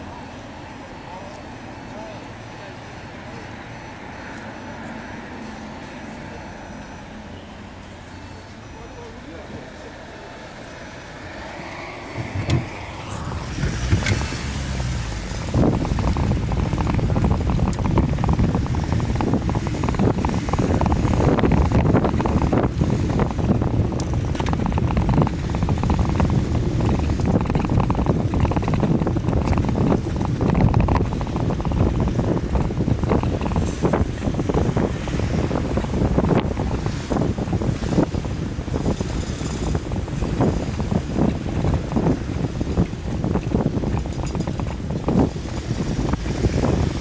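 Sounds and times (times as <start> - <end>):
wind buffeting microphone: 10.5 - 47.0.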